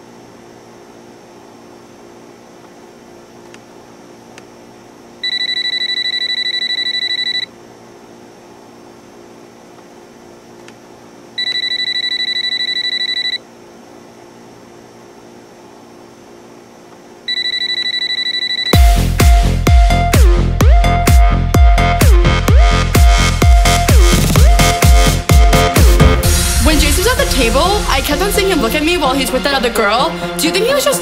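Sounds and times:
telephone ringing electronic trill: 0:05.2 - 0:07.5, 0:11.4 - 0:13.4, 0:17.3 - 0:19.0.

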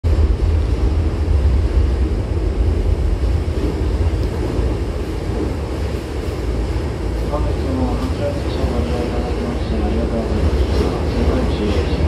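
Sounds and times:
electric train rumbling on rails: 0:00.0 - 0:12.0.

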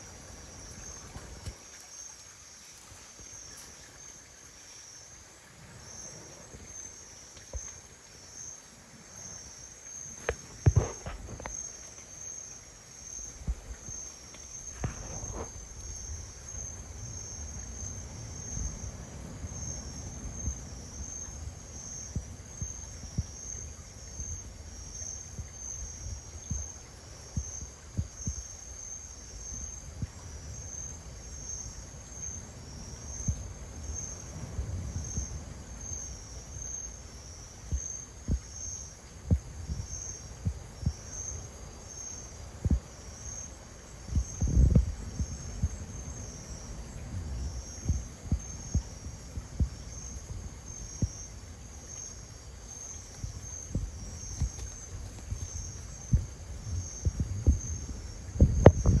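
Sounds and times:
night insects chirping: 0:00.0 - 0:59.0
low knocks and thumps: 0:13.4 - 0:14.0, 0:14.7 - 0:16.1, 0:44.1 - 0:45.8, 0:47.8 - 0:51.2, 0:53.2 - 0:59.0.

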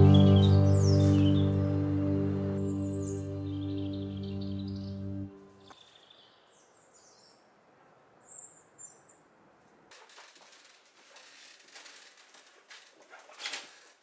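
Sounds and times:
bird chirps: 0:00.0 - 0:01.7, 0:02.6 - 0:07.4
bicycle being wheeled: 0:09.9 - 0:14.0.

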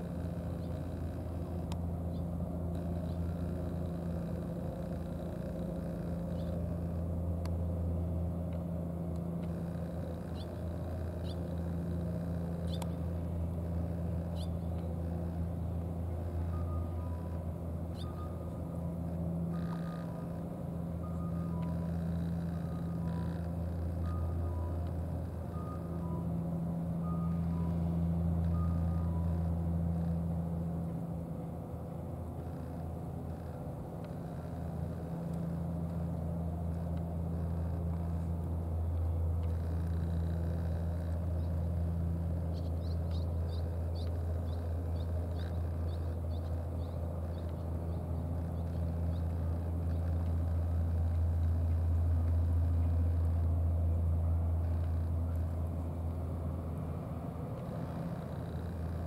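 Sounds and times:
faint high ticks: 0:00.0 - 0:07.6, 0:08.5 - 0:18.3, 0:21.4 - 0:25.8, 0:32.4 - 0:53.8, 0:54.6 - 0:56.2
low engine hum: 0:00.0 - 0:59.0.

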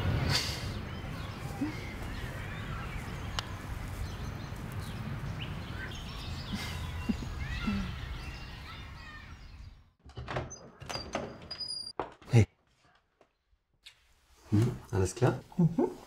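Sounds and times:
birds chirping: 0:00.0 - 0:11.9.

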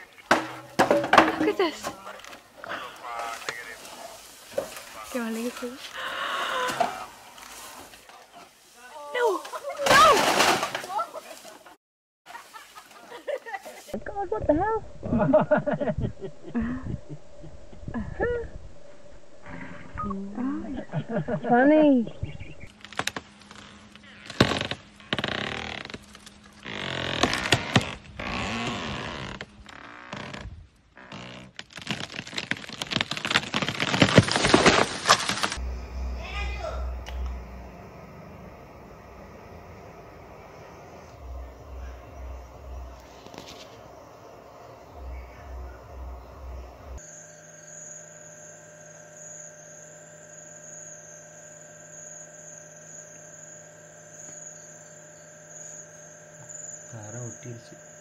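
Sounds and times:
low pulsing rumble: 0:14.0 - 0:22.7, 0:35.6 - 0:47.0
high whine: 0:14.0 - 0:22.8, 0:35.5 - 0:58.0
electrical hum: 0:14.0 - 0:31.4, 0:34.6 - 0:58.0
tree creaking and cracking: 0:22.6 - 0:37.4
wood snapping: 0:31.3 - 0:35.6.

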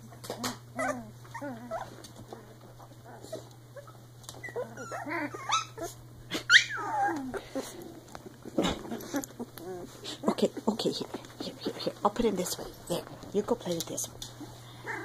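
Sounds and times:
puppies growling: 0:00.1 - 0:15.0
puppies whimpering: 0:00.7 - 0:10.3, 0:14.6 - 0:15.0.

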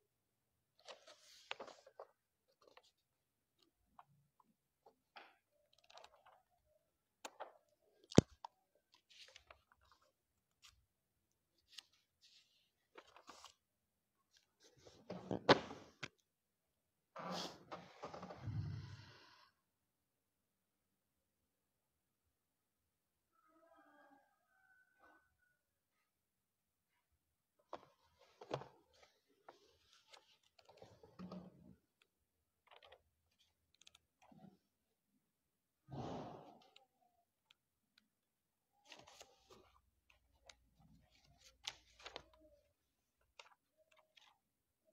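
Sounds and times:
book pages turning: 0:00.7 - 0:06.6, 0:07.2 - 0:16.2, 0:27.6 - 0:34.6, 0:38.8 - 0:44.6
papers rustling: 0:00.8 - 0:04.1, 0:07.2 - 0:10.9, 0:11.5 - 0:13.7, 0:27.6 - 0:34.5, 0:38.8 - 0:44.4.

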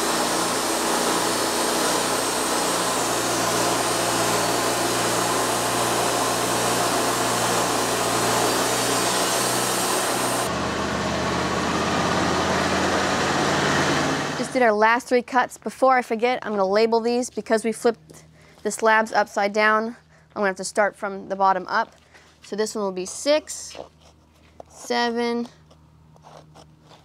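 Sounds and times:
band blade hissing through log: 0:00.0 - 0:10.5
sawmill engine running: 0:00.0 - 0:14.8.

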